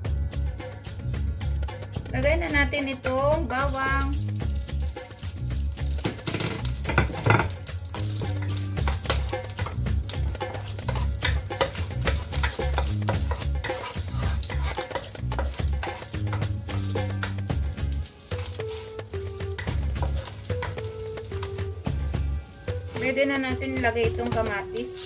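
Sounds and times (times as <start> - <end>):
background music: 0.0 - 25.0
garlic sizzling in oil: 3.7 - 25.0
wooden spatula scraping pan: 8.4 - 16.4.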